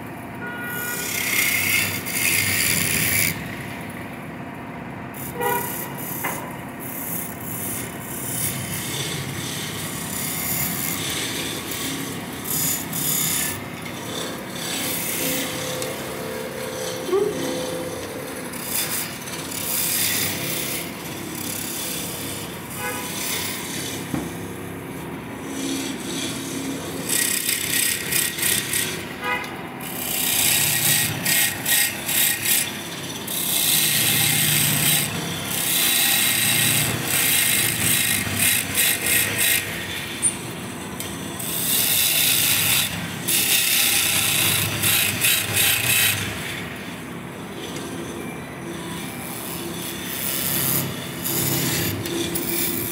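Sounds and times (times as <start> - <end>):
wood lathe running: 0.7 - 4.2, 5.2 - 24.2, 24.8 - 52.9
turning tool scraping wood: 5.2 - 24.3.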